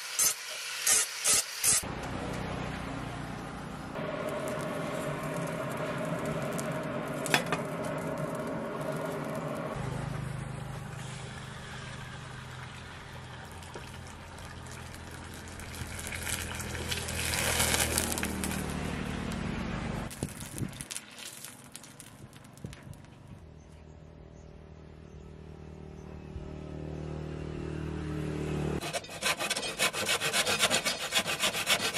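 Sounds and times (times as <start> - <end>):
quench oil sizzling and crackling: 0.0 - 1.9, 4.0 - 23.2
low motor hum: 1.8 - 20.2, 23.1 - 28.8
forge air blower: 4.0 - 9.9.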